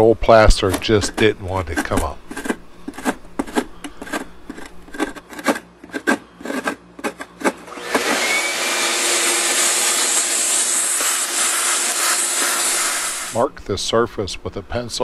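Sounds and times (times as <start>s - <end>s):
scraper rasping on plaster: 0.6s - 13.4s
vacuum cleaner hissing: 7.7s - 13.5s.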